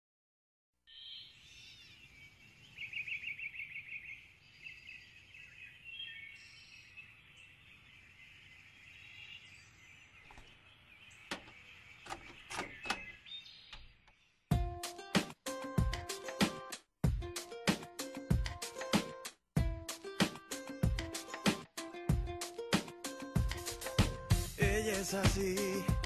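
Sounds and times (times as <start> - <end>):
birds chirping: 0.9 - 14.8
sharp clicks: 11.3 - 13.9
music: 14.5 - 26.0.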